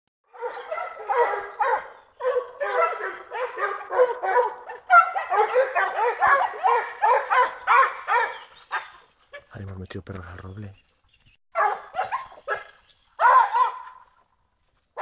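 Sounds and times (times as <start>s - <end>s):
hounds baying: 0.3s - 9.6s, 11.6s - 14.2s.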